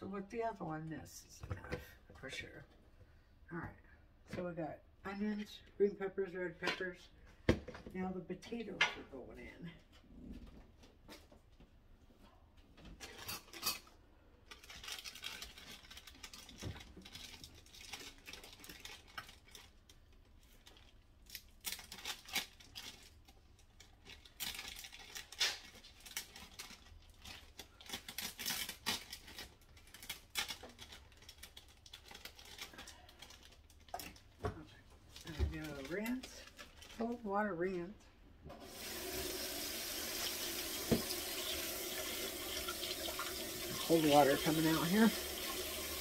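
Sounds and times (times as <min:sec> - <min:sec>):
plastic bag rustling: 0:14.4 - 0:34.4, 0:35.0 - 0:37.3.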